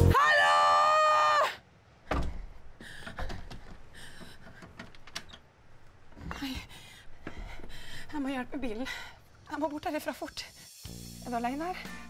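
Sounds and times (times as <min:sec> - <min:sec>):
music: 0:00.0 - 0:00.2, 0:10.3 - 0:12.0
door clicks and rattles: 0:02.1 - 0:05.5.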